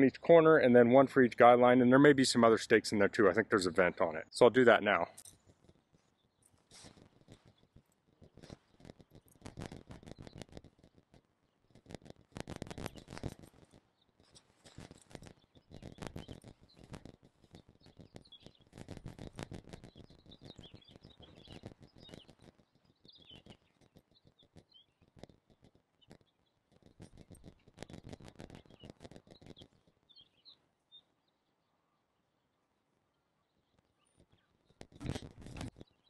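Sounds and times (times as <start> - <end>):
hands rustling tent stakes: 5.1 - 22.7, 23.4 - 30.0, 34.0 - 36.0
birds chirping faintly: 12.7 - 36.0.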